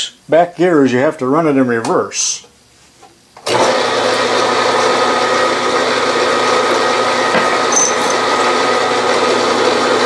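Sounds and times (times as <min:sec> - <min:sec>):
milling machine motor hum: 0:03.5 - 0:10.0.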